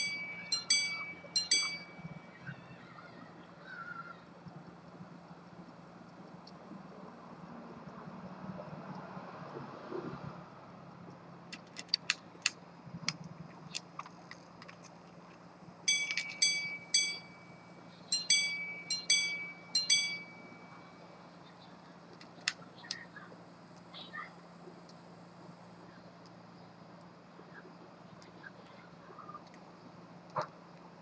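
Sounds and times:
pocket watch chiming on gongs: 0.0 - 2.6, 15.9 - 21.1
watch movement clicks: 11.5 - 15.0, 15.9 - 16.5.

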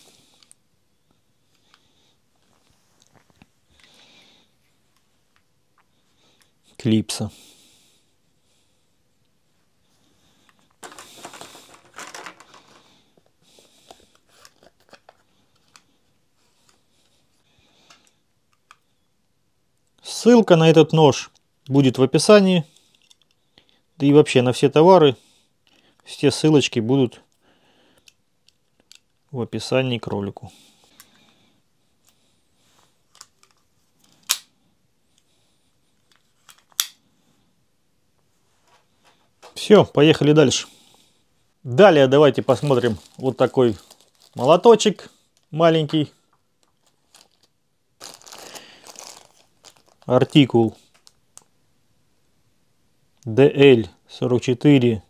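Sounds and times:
cardboard and plastic crinkling: 10.8 - 12.9, 42.2 - 45.0, 46.6 - 51.2.

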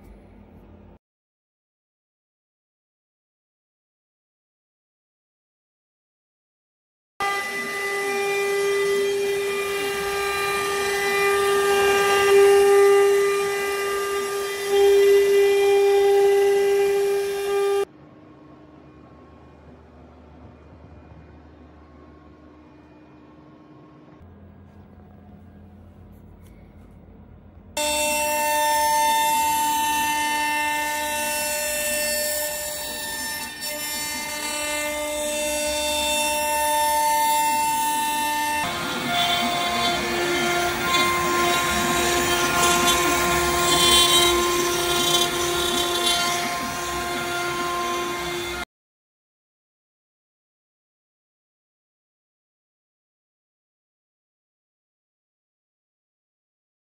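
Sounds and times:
faint hum: 0.0 - 1.0, 17.9 - 27.8
router spindle whining: 7.2 - 17.9, 27.8 - 48.6
wood being milled: 27.8 - 48.6.

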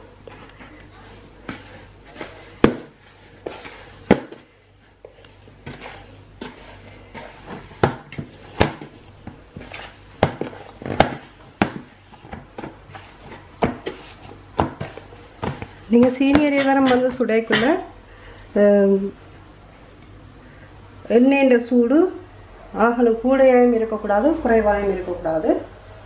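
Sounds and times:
dough slapping against bowl: 0.2 - 17.9.

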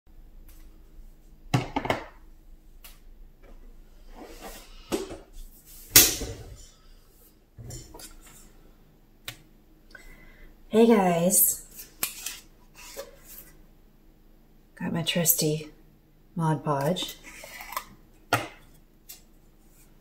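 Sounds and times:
small items knocking on tabletop: 1.5 - 2.2.

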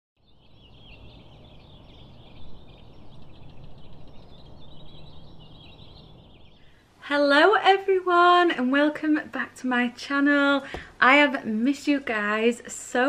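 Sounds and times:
songbirds chirping and singing: 0.2 - 6.8.

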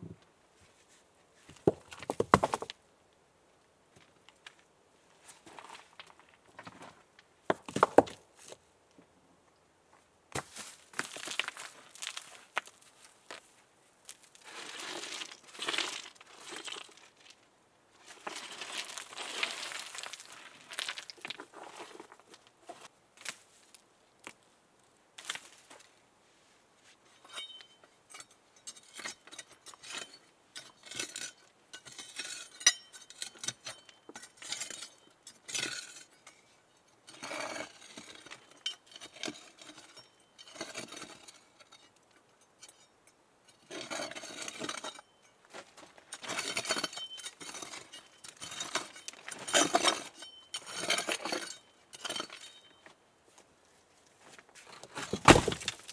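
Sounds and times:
rustling and scraping debris: 0.6 - 2.8, 3.9 - 8.7, 10.3 - 24.4, 25.2 - 55.9
stones clinking together: 1.6 - 2.8, 46.2 - 52.8, 55.0 - 55.9.

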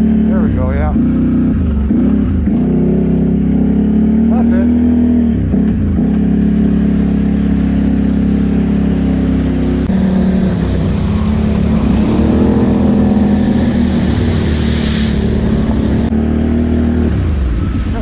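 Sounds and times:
quad bike engine running: 0.0 - 18.0
water splashing and spraying: 6.5 - 16.1.

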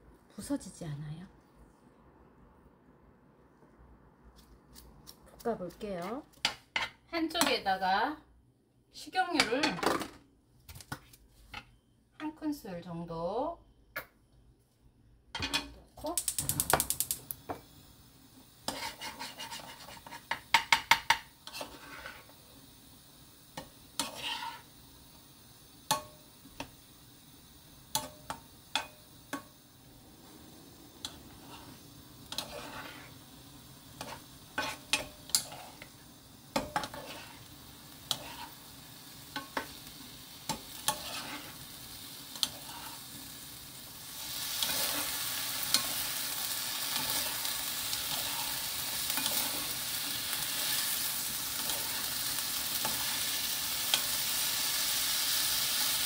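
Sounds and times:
wooden spoons stirring vegetables: 4.6 - 7.8, 18.6 - 22.4, 23.6 - 24.7, 31.0 - 43.2, 44.2 - 54.3
frying sizzle: 15.4 - 56.0
spoons knocking against pan: 20.3 - 21.3.

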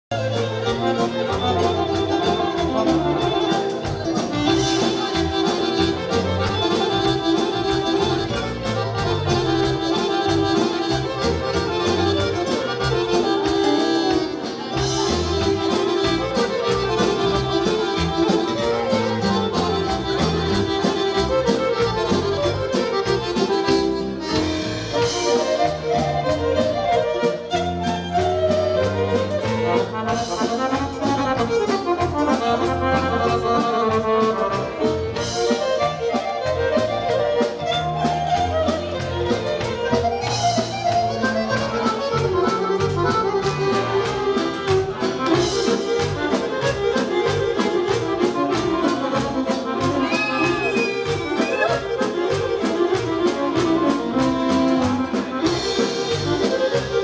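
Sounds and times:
folk dance band playing: 0.0 - 57.0
piano accordion: 0.1 - 57.0.

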